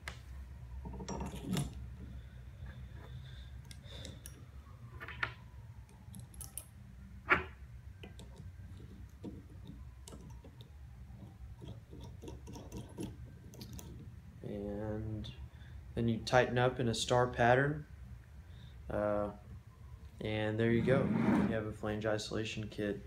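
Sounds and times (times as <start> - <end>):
metal nuts clicking: 11.6 - 14.0.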